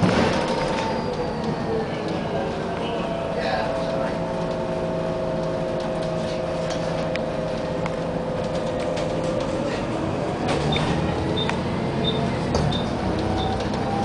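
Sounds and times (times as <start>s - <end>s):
bus engine drone: 0.0s - 14.0s.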